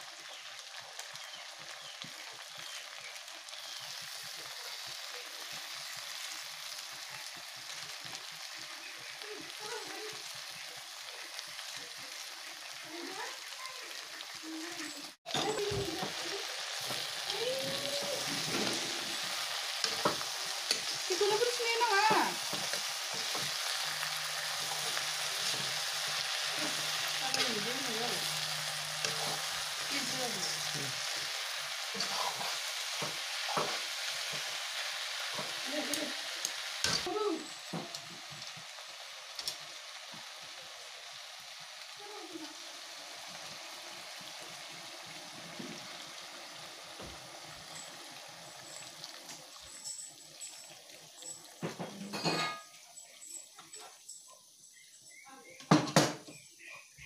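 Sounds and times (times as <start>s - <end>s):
vegetables sizzling in oil: 0.0s - 57.0s
water pouring into hot wok: 2.8s - 52.6s
metal spatula scraping pan: 18.4s - 30.7s.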